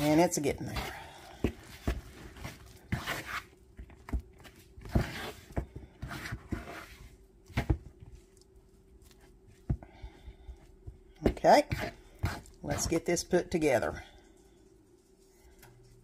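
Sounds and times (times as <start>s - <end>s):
metal utensil stirring dough in bowl: 0.0s - 8.3s, 11.2s - 14.0s.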